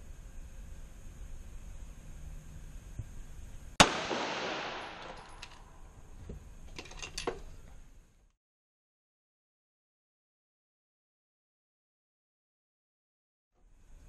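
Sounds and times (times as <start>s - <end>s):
pistol shot with echo: 3.8s - 5.8s.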